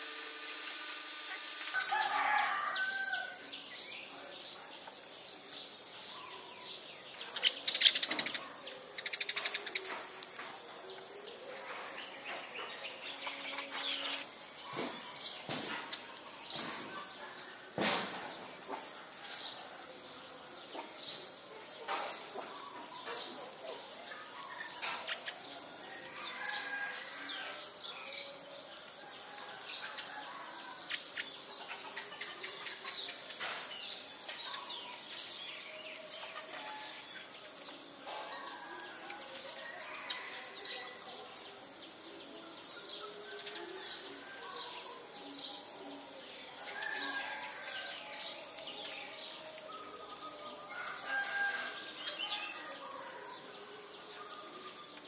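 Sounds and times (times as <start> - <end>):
insect drone: 0.0 - 55.0
sparrows chirping: 1.4 - 17.6
rooster crowing: 1.6 - 3.6, 25.7 - 27.8, 38.2 - 41.2, 46.6 - 48.5, 50.5 - 53.9.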